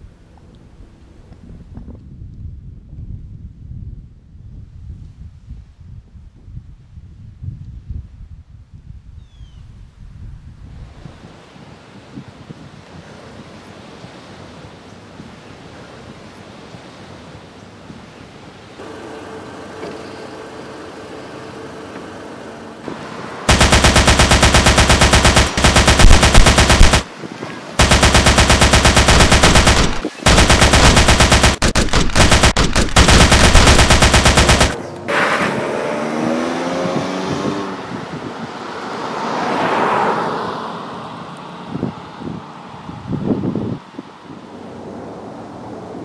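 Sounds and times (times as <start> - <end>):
rushing noise: 22.8 - 27.2, 27.8 - 36.2
automatic gunfire bursts: 23.5 - 27.1, 27.8 - 34.8.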